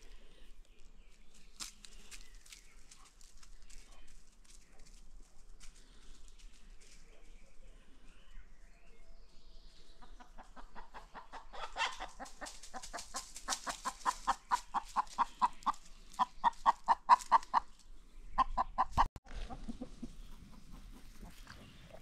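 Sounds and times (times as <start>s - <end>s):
chickens clucking: 9.8s - 22.0s.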